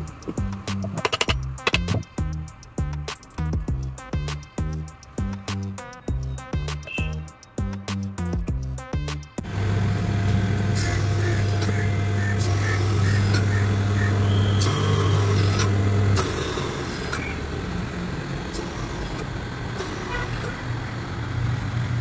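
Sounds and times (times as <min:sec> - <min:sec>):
sewing machine motor hum: 0:09.4 - 0:22.0.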